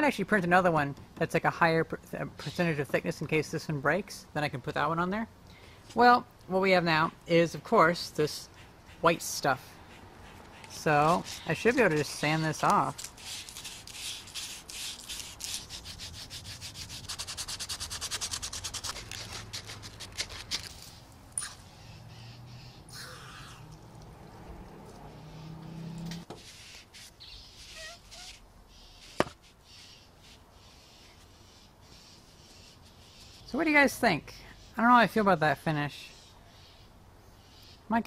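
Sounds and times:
sandpaper rubbing plastic: 0:11.0 - 0:21.0, 0:26.3 - 0:33.4.

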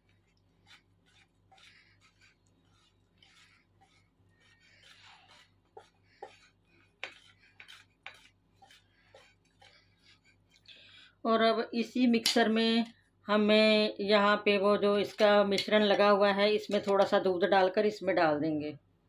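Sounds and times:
whisk stirring batter: 0:00.0 - 0:10.7.

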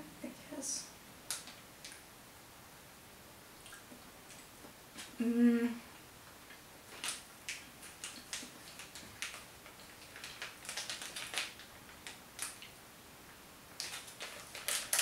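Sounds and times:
plastic bag crinkling: 0:06.9 - 0:12.7, 0:13.8 - 0:15.0.

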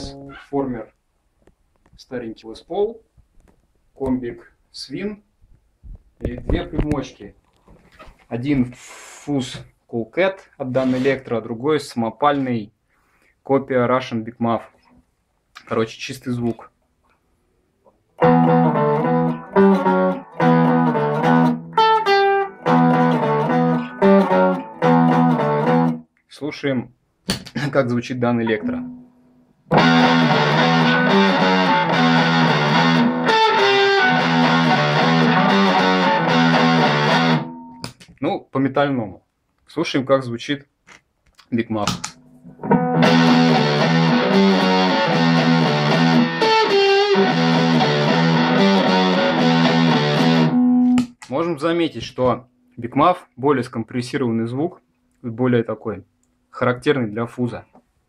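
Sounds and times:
clean electric guitar strumming: 0:00.0 - 0:00.4, 0:18.2 - 0:26.0, 0:28.6 - 0:37.9, 0:42.0 - 0:51.2.

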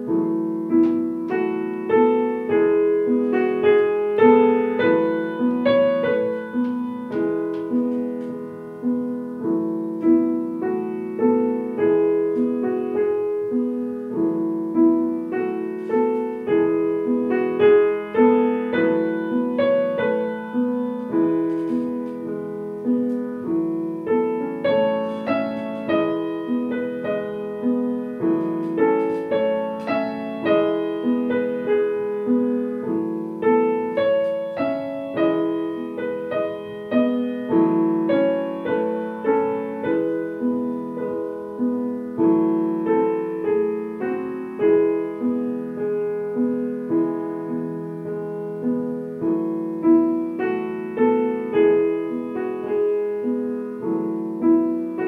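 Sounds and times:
grand piano playing: 0:00.0 - 0:55.0.

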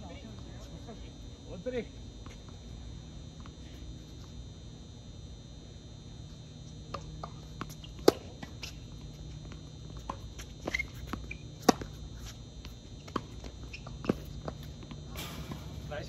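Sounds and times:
low hum: 0:00.0 - 0:16.0
footsteps on court: 0:02.2 - 0:02.7, 0:06.9 - 0:15.9
rackets striking tennis ball: 0:06.9 - 0:08.9, 0:09.9 - 0:16.0.

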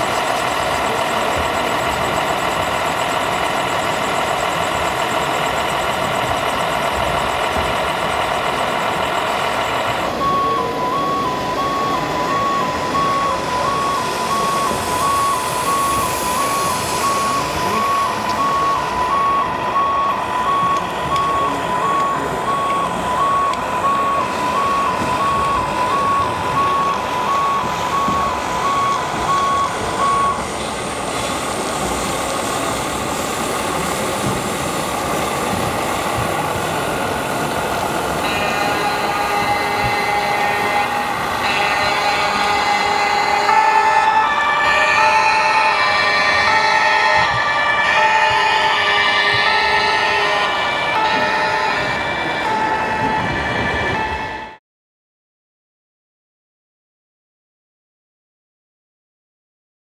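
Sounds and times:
two-tone fire engine siren: 0:00.0 - 0:54.6.

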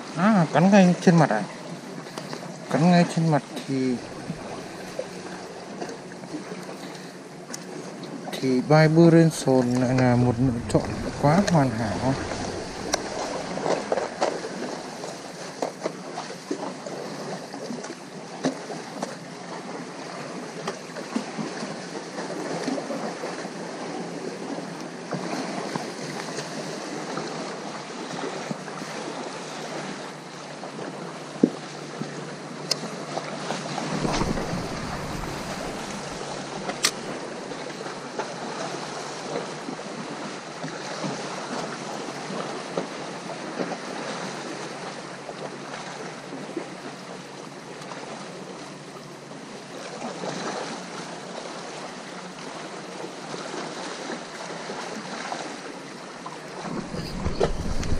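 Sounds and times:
sea surf washing: 0:02.2 - 0:16.6, 0:31.8 - 0:39.7.

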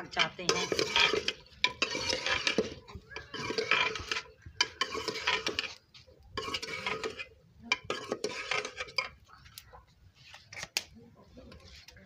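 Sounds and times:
metal ladle scraping a pot: 0:00.0 - 0:09.6.

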